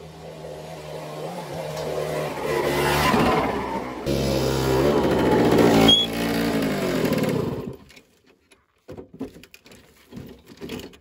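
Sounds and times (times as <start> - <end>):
moped engine revving: 0.0 - 7.8.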